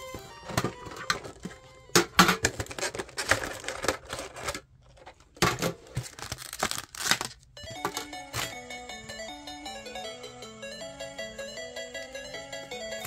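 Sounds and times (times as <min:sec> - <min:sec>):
background music: 0:00.0 - 0:02.2, 0:07.6 - 0:13.0
foil wrapper tearing and crinkling: 0:02.4 - 0:04.6, 0:05.9 - 0:07.4.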